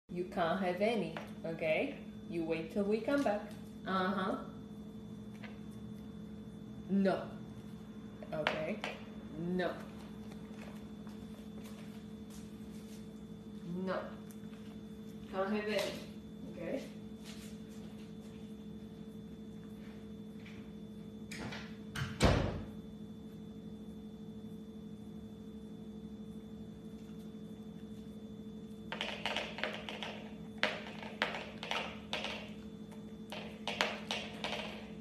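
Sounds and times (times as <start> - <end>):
steady low hum: 0.1 - 35.0
door shutting with a thud: 21.4 - 22.7
dog claws clicking on hardwood floor: 28.9 - 32.6, 33.3 - 35.0.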